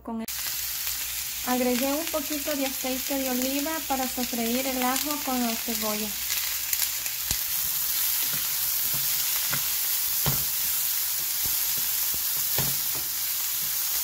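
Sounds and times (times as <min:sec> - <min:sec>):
onion sizzling in frying pan: 0:00.3 - 0:14.0.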